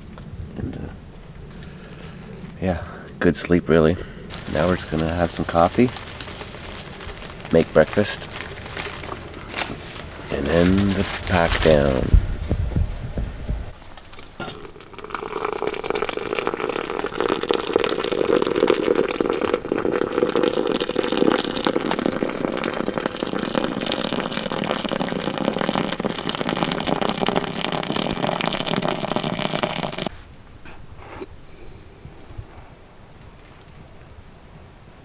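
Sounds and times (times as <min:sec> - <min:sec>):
hot water pouring into glass: 0:14.3 - 0:30.1.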